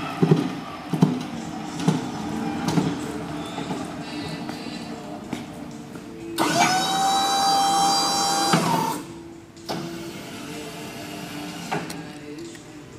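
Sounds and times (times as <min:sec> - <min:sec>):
hydraulic pump motor whining: 0:06.4 - 0:12.1.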